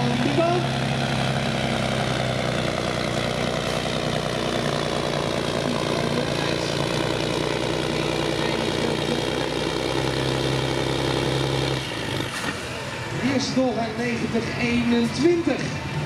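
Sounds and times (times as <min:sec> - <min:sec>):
diesel engine under full load: 0:00.0 - 0:16.0.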